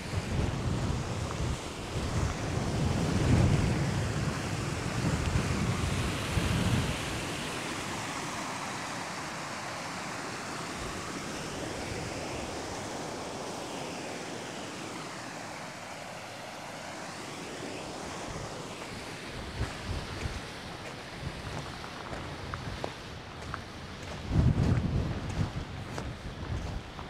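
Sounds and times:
wind buffeting microphone: 19.4s - 27.0s.

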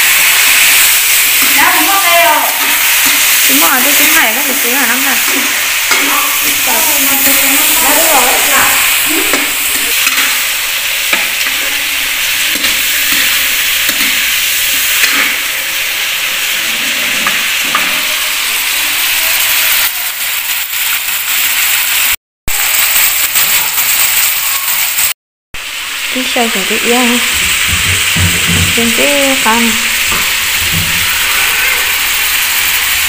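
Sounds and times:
meat sizzling in a wok: 0.0s - 33.0s
metal spatula scraping pan: 0.2s - 18.6s.

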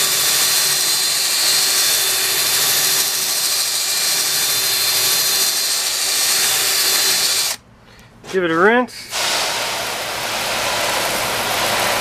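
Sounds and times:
drill motor whine: 0.0s - 7.6s
bristles scrubbing siding: 9.1s - 12.0s.

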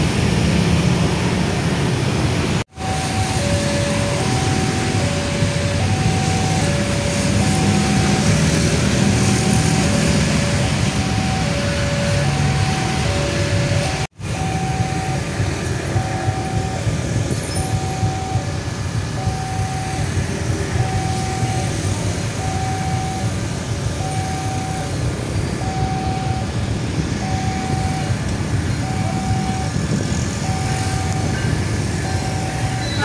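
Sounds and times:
road traffic noise: 0.0s - 33.0s
level crossing alarm two-tone chime: 2.8s - 15.3s, 15.9s - 17.0s, 25.6s - 26.5s, 27.2s - 29.8s, 30.4s - 33.0s.

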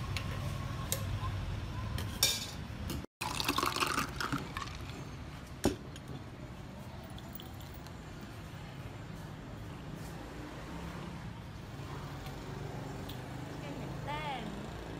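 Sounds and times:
drink pouring and splashing: 3.2s - 5.0s.

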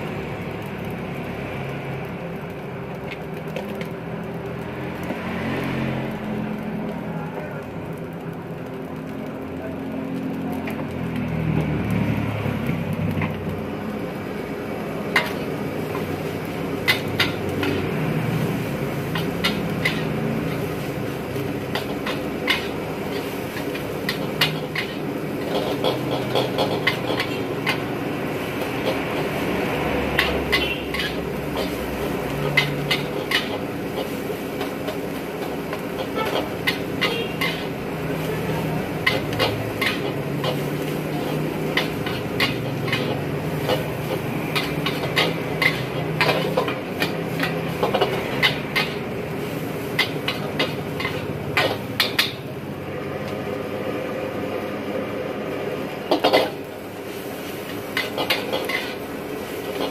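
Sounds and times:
utensils scraping a wok: 12.1s - 53.2s, 55.8s - 59.9s.

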